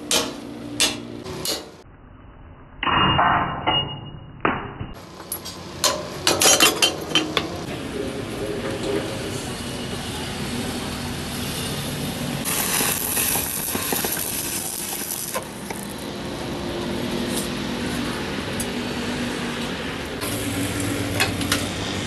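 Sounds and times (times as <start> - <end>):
loud hiss: 10.4 - 16.0.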